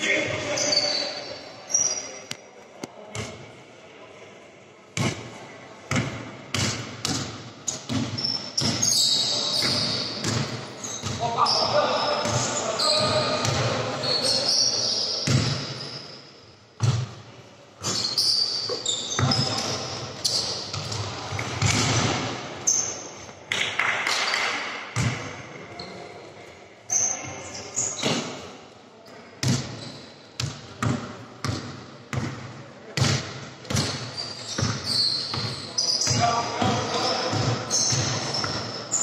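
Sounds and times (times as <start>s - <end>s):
shoe squeaks: 0.5s - 2.3s, 7.7s - 16.4s, 17.8s - 20.8s, 29.7s - 30.2s, 33.8s - 39.0s
basketball bouncing: 5.9s - 8.9s, 9.6s - 11.2s, 30.4s - 34.0s.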